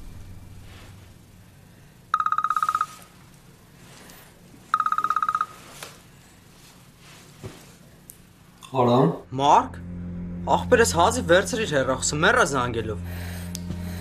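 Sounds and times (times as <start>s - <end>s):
mobile phone ringing: 2.1s - 3.2s, 4.7s - 5.8s.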